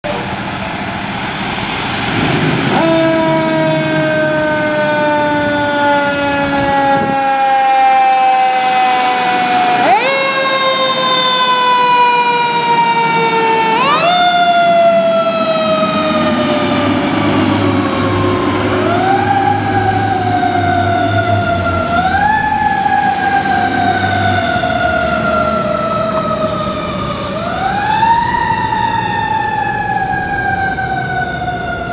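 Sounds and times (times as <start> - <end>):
fire engine siren: 0.0 - 31.9.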